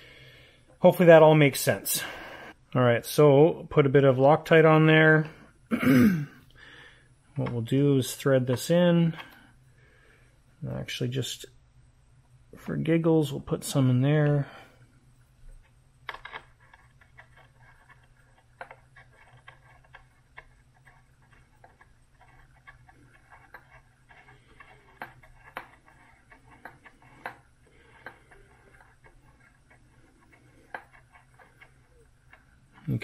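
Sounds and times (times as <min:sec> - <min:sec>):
low steady hum: 0:00.0 - 0:33.0
faint clicks and handling noises: 0:07.3 - 0:09.6, 0:13.6 - 0:33.0.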